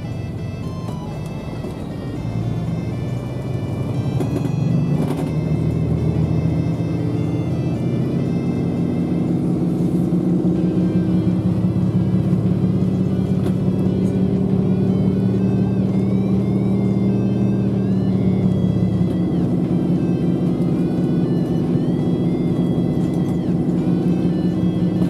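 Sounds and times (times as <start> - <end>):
bus engine drone: 0.0 - 25.0.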